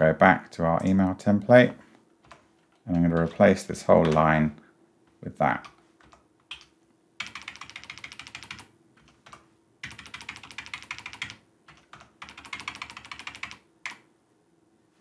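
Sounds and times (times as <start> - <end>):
keyboard keys tapping: 2.2 - 4.4, 5.6 - 14.0.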